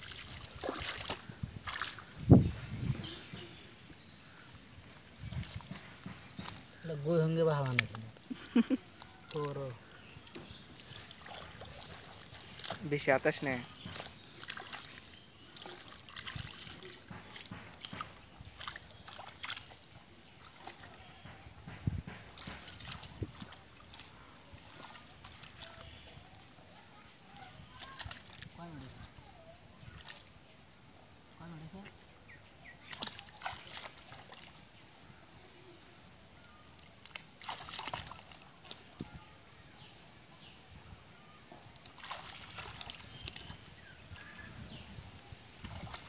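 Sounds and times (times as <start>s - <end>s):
hands splashing in muddy water: 0.0s - 3.5s, 4.3s - 21.2s, 21.8s - 26.2s, 27.3s - 29.2s, 29.8s - 30.4s, 32.7s - 34.7s, 36.6s - 39.2s, 41.7s - 44.9s, 45.6s - 46.0s.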